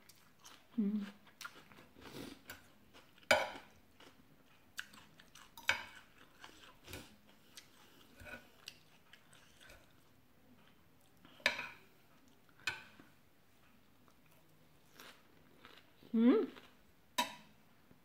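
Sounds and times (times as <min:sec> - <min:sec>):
chewing noodles: 0:00.0 - 0:11.4, 0:14.0 - 0:16.8
cutlery clicking on plate: 0:17.2 - 0:17.5.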